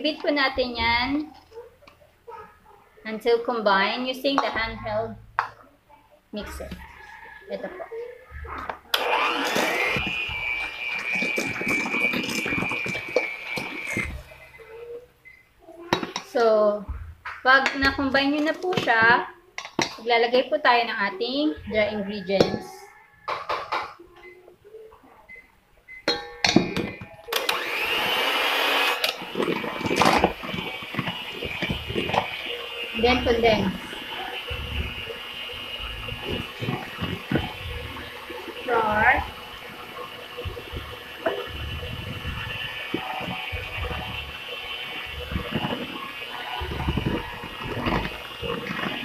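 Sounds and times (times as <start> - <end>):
electric mixer motor whine: 8.6 - 14.6, 26.8 - 49.0
beaters knocking metal bowl: 26.1 - 28.0, 28.7 - 49.0.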